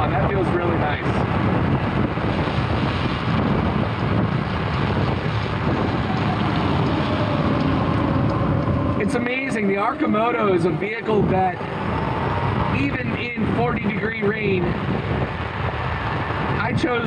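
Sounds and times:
tyres on wet road: 0.0s - 17.0s
wind rush over microphone: 0.0s - 17.0s
faint falling whine: 5.1s - 17.0s.

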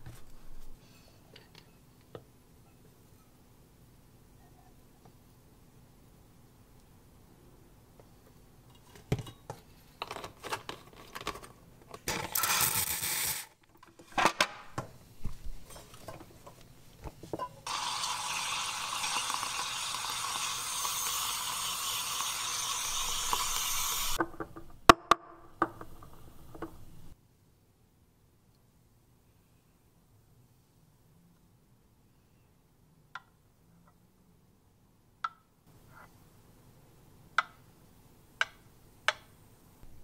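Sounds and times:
metal milk pitcher clinking: 17.7s - 24.2s
steam wand hissing: 17.7s - 24.2s.

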